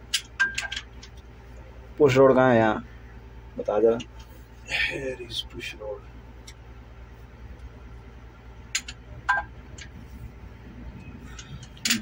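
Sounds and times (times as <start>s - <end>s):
steady low hum: 0.0s - 12.0s
metallic clicks of valve train: 11.3s - 12.0s.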